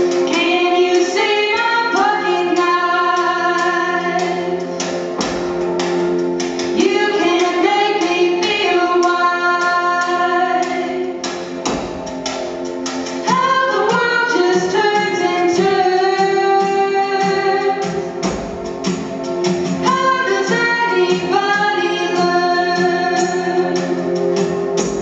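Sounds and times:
women singing in harmony: 0:00.3 - 0:04.8, 0:06.8 - 0:11.2, 0:13.2 - 0:18.1, 0:19.8 - 0:24.1.

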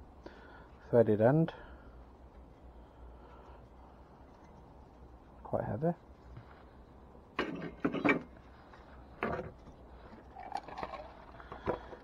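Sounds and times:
metal knocks and scrapes: 0:07.4 - 0:08.4.

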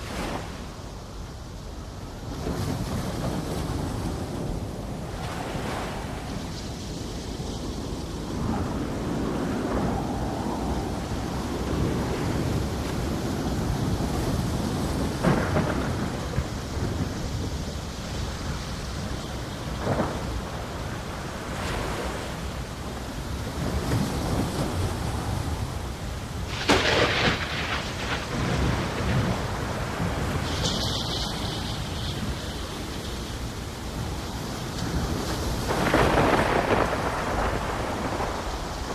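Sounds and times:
steady rain: 0:00.0 - 0:38.9
rolling thunder with sharp cracks: 0:13.9 - 0:17.6, 0:19.8 - 0:20.7, 0:26.5 - 0:32.3, 0:34.9 - 0:38.9.

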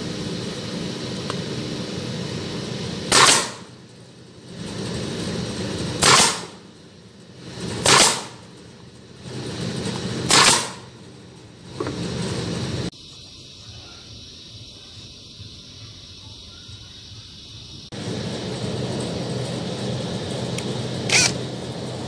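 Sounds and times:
steady mechanical hum: 0:00.0 - 0:22.0
pneumatic nailer bangs: 0:03.1 - 0:03.8, 0:05.9 - 0:06.6, 0:07.6 - 0:08.5, 0:09.9 - 0:11.0.

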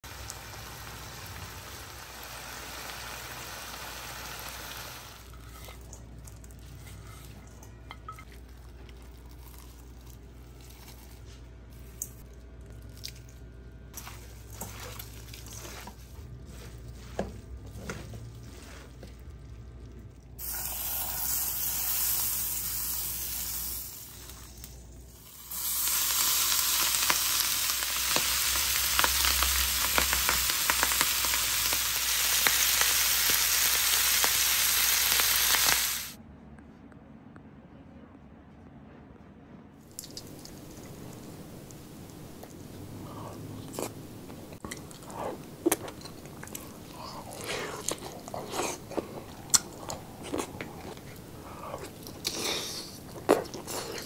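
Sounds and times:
food sizzling in a pan: 0:00.0 - 0:05.8, 0:20.4 - 0:36.2
stirring and mixing: 0:05.2 - 0:20.4.

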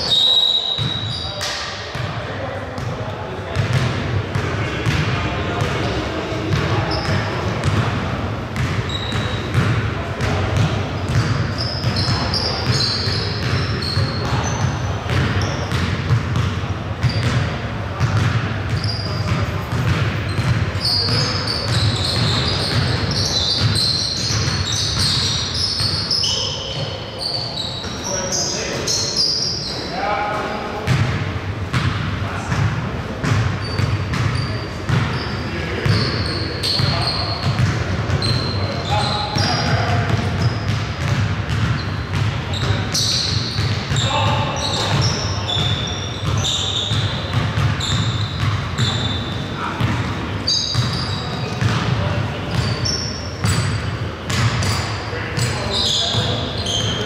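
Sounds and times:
sneaker squeaks on gym floor: 0:00.0 - 0:02.2, 0:02.8 - 0:08.0, 0:08.6 - 0:30.2, 0:30.8 - 0:57.0
basketball bouncing: 0:03.6 - 0:05.8, 0:08.6 - 0:26.0, 0:30.8 - 0:35.2, 0:35.8 - 0:38.6, 0:39.4 - 0:56.8.

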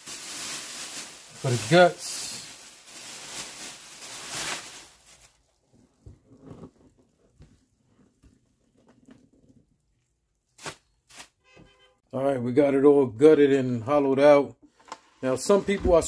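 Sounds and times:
plastic bag rustling: 0:00.0 - 0:07.1.

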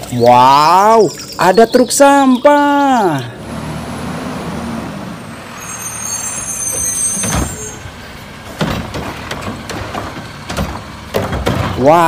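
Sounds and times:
garbage truck engine running: 0:03.1 - 0:12.0
high squeal: 0:05.2 - 0:08.0
bin lifting clunks: 0:08.4 - 0:12.0.

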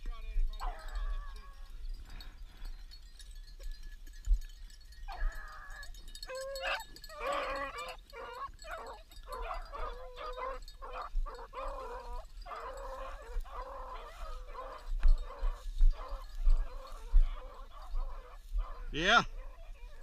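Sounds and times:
dogs baying and yelping: 0:00.5 - 0:03.1, 0:04.9 - 0:20.0.

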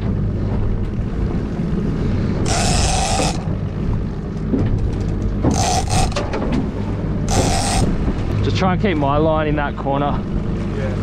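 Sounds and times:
outboard motor humming: 0:00.0 - 0:11.0
fishing reel gears ticking: 0:02.5 - 0:03.5, 0:05.5 - 0:06.2, 0:07.3 - 0:07.9.

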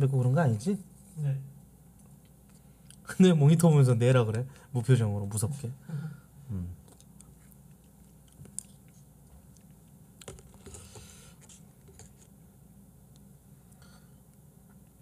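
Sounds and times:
faint chewing: 0:01.9 - 0:03.0, 0:06.8 - 0:12.4
small cup being handled: 0:10.2 - 0:12.4.

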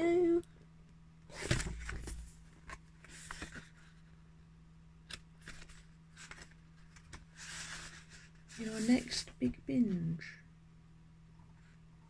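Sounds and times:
magazine pages rustling: 0:01.3 - 0:04.1, 0:05.1 - 0:09.3.

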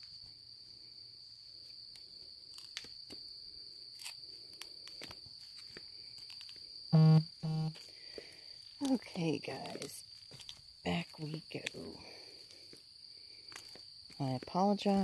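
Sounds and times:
crickets chirring: 0:00.0 - 0:15.0
phone vibrating: 0:07.0 - 0:07.8.

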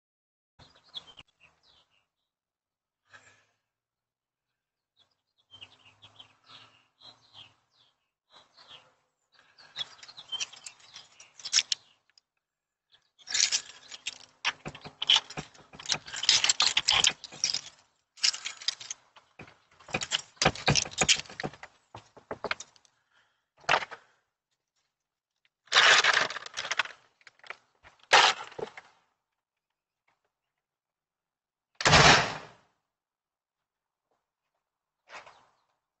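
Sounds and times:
rustling and clicking of small objects: 0:09.7 - 0:12.3, 0:13.2 - 0:22.9, 0:25.4 - 0:29.1.

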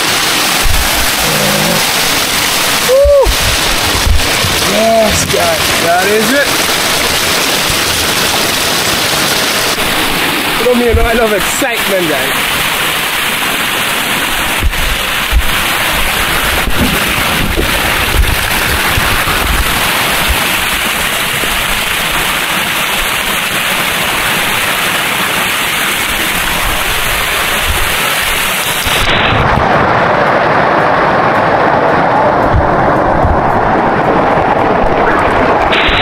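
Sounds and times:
low rumbling gusts: 0:00.0 - 0:22.2, 0:26.1 - 0:36.0
waterfall rushing: 0:00.0 - 0:36.0
sharp knocks: 0:16.6 - 0:18.3.

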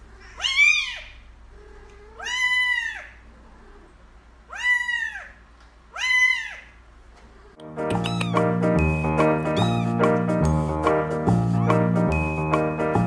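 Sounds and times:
kitten meowing: 0:00.2 - 0:01.2, 0:02.0 - 0:03.2, 0:04.5 - 0:06.7, 0:07.9 - 0:08.6, 0:09.5 - 0:10.1.

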